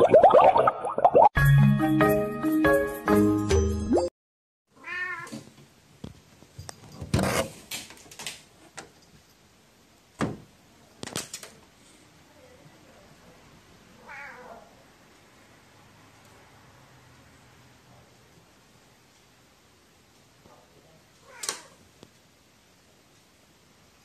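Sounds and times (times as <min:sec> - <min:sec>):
cat meowing: 0:04.8 - 0:05.3, 0:14.0 - 0:14.8, 0:21.2 - 0:21.8.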